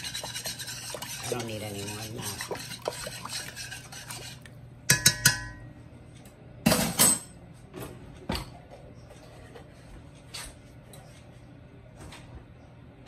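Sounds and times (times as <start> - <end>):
metal spoon clinking on a pot: 4.9 - 5.7.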